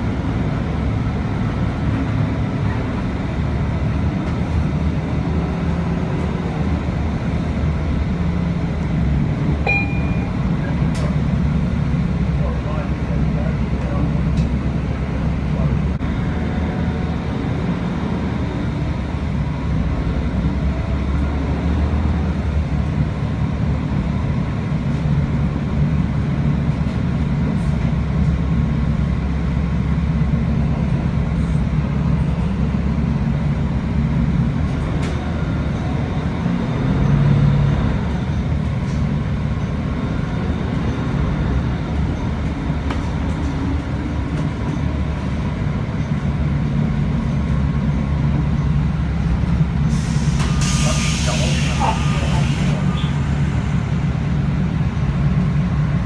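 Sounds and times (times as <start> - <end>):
bus engine and road rumble: 0.0 - 56.0.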